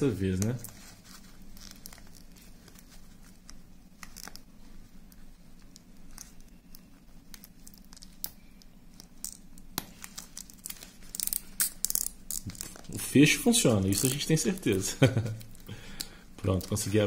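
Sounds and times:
leather strap rustling: 0:00.4 - 0:06.4.

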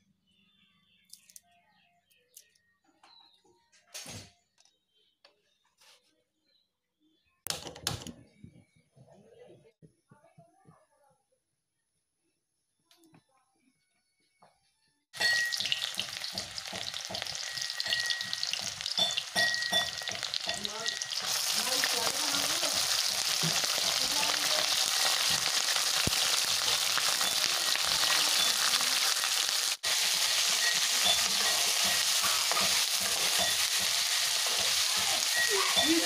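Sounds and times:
meat sizzling in hot oil: 0:15.2 - 0:36.0
metal spatula scraping pan: 0:30.0 - 0:36.0.

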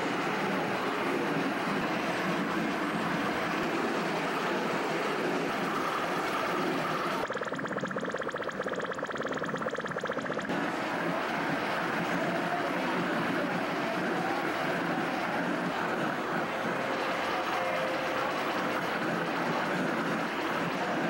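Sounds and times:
electronic noise drone: 0:00.0 - 0:21.0
pulsing electronic buzz: 0:07.2 - 0:10.8.

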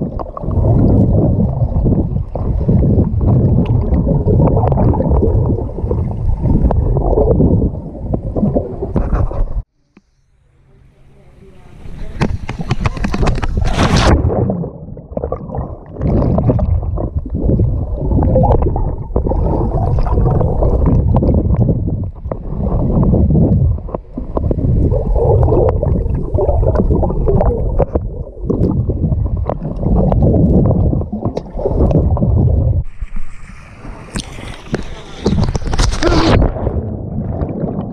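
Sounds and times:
pool water rushing and gurgling: 0:10.8 - 0:37.9.

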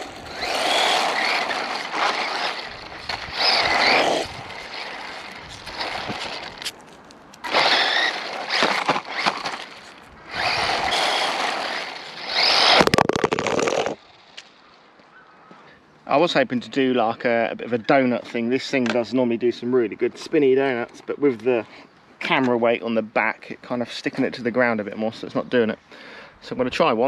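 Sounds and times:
electric toy car motor whining: 0:00.0 - 0:06.7, 0:07.4 - 0:14.4
tyres rolling on asphalt: 0:00.0 - 0:14.7.

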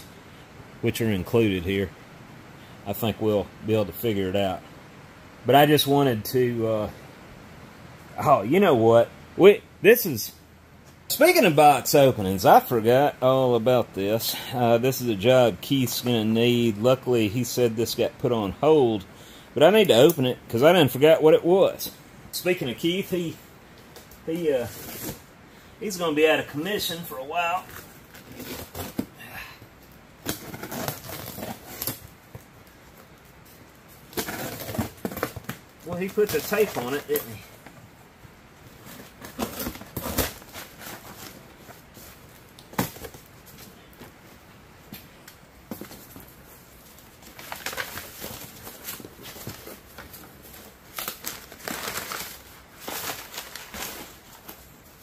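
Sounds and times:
cardboard box and plastic crinkling: 0:30.2 - 0:33.2, 0:34.0 - 0:37.8, 0:38.7 - 0:44.2, 0:45.6 - 0:55.0
packing paper rustling: 0:30.2 - 0:33.2, 0:34.0 - 0:37.7, 0:38.7 - 0:43.7, 0:45.7 - 0:55.0.

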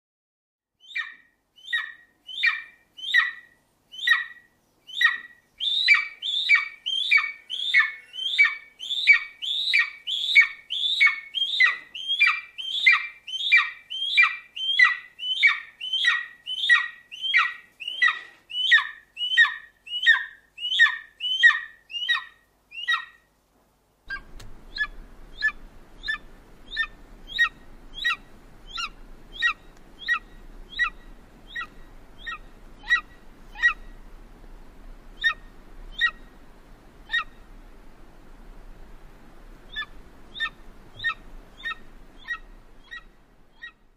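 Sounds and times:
eagle calling: 0:00.8 - 0:23.2, 0:24.1 - 0:34.2, 0:35.1 - 0:36.4, 0:37.0 - 0:37.6, 0:39.6 - 0:43.9
low background hum: 0:23.3 - 0:43.9.

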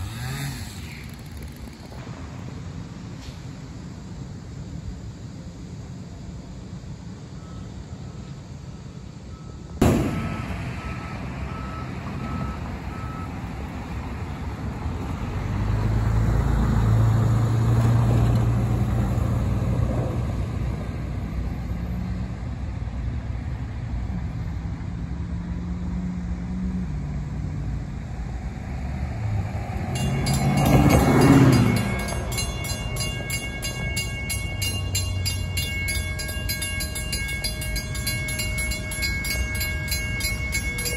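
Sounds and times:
diesel locomotive engine rumbling: 0:00.0 - 0:40.9
crossing bell ringing: 0:29.7 - 0:40.9.

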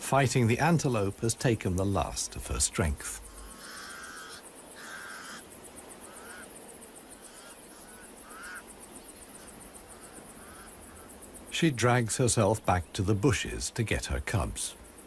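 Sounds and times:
insects ticking: 0:00.0 - 0:15.0
crows cawing: 0:03.2 - 0:11.3.

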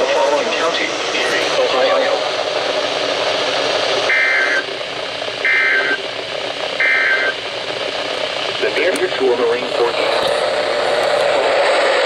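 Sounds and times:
radio reception static hiss: 0:00.0 - 0:12.0
two-tone data bursts: 0:04.1 - 0:04.7, 0:05.4 - 0:06.0, 0:06.8 - 0:07.4.

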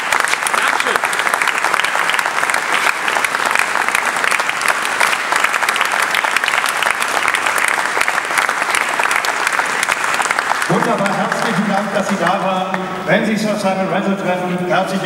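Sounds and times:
large audience applauding: 0:00.0 - 0:13.0.

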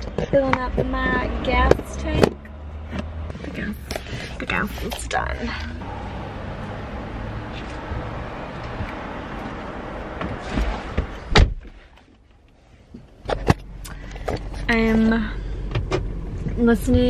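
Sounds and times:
low hum: 0:00.6 - 0:11.3
car door slamming: 0:10.2 - 0:11.8.

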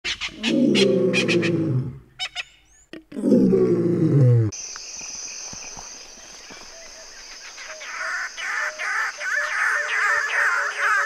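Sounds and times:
low drawn-out animal calls: 0:00.2 - 0:02.2.

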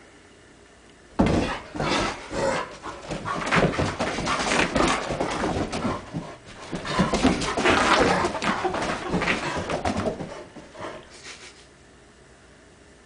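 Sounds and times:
dogs scuffling and bumping: 0:01.2 - 0:11.0
dogs barking and vocalising: 0:01.3 - 0:11.2.

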